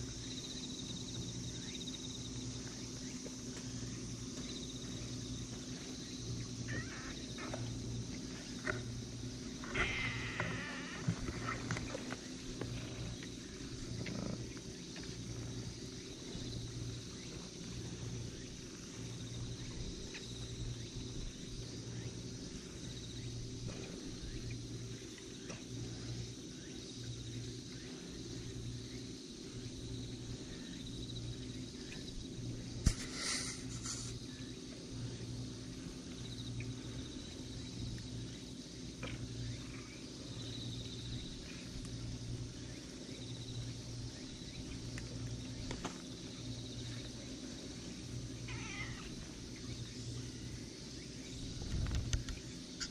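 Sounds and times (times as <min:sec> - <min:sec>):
faint insect chirring: 0:00.0 - 0:52.9
low pulsing hum: 0:00.0 - 0:52.9.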